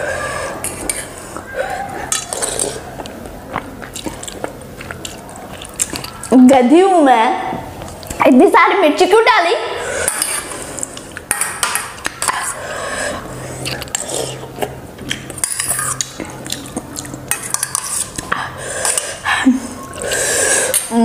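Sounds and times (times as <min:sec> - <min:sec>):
mouth sounds eating noodles: 0:00.0 - 0:06.4, 0:12.0 - 0:21.0
spoon scraping metal bowl: 0:09.9 - 0:12.6, 0:17.1 - 0:19.2.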